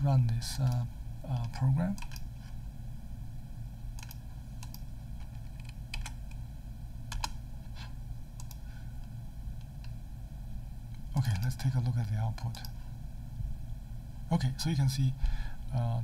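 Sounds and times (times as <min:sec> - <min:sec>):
low steady hum: 0:00.0 - 0:16.0
computer mouse clicks: 0:01.4 - 0:02.3, 0:04.0 - 0:06.4, 0:07.1 - 0:07.4, 0:08.4 - 0:08.6, 0:12.4 - 0:12.8.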